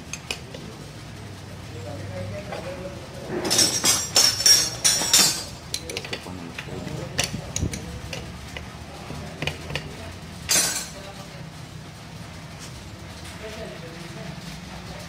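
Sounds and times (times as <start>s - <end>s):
metal spanners clinking and scraping: 3.3s - 6.3s, 10.5s - 11.0s.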